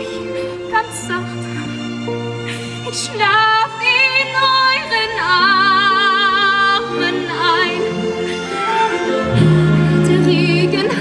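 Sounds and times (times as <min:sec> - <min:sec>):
instrumental accompaniment: 0:00.0 - 0:11.0.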